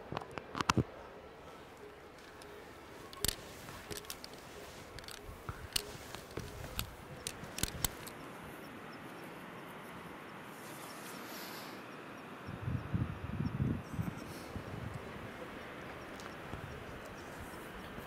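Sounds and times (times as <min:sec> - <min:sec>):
faint steady hiss: 0:00.0 - 0:18.0
climbing hardware clinking: 0:01.8 - 0:08.2.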